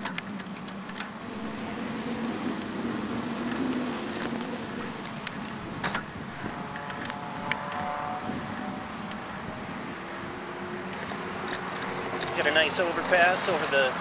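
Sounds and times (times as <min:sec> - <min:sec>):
bicycle clicks and rattles: 0:00.0 - 0:14.0
road traffic hum: 0:00.0 - 0:14.0
wind and tyres rushing: 0:00.0 - 0:14.0
faint whine: 0:01.1 - 0:06.1.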